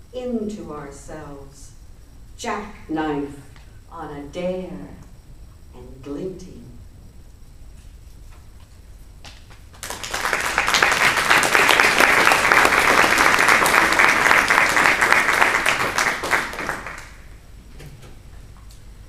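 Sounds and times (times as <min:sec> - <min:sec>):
audience applauding: 0:09.5 - 0:17.3.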